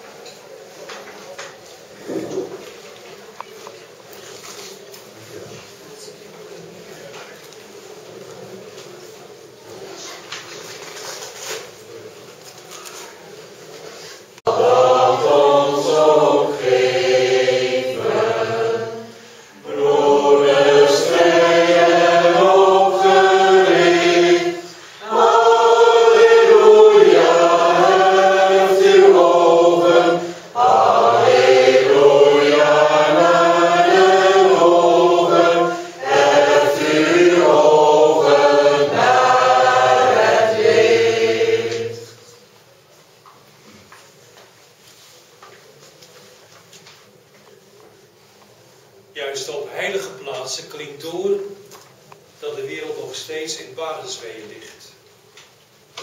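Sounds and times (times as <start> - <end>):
group singing a slow hymn: 14.4 - 42.3.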